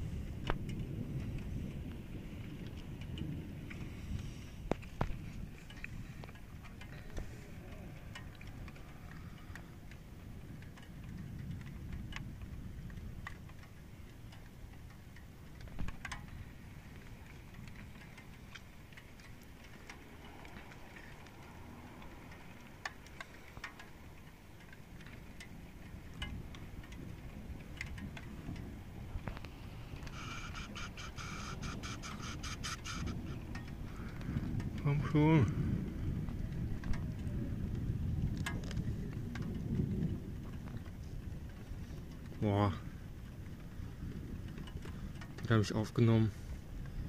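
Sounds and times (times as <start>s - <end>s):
wind rumbling: 0.0s - 47.0s
light ticks and taps: 0.4s - 35.7s.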